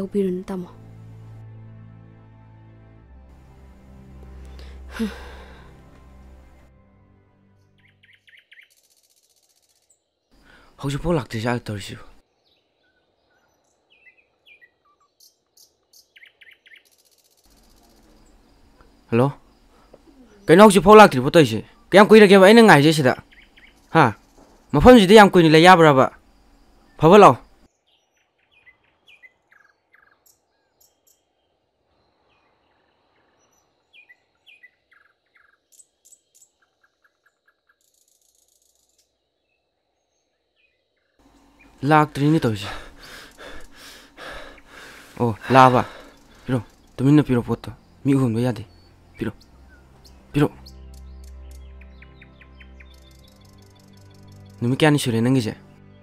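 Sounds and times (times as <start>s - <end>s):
songbird chirps: 0.0s - 56.0s
buzzy insect trill: 8.6s - 10.5s, 16.8s - 27.7s, 41.2s - 51.6s, 52.9s - 55.5s.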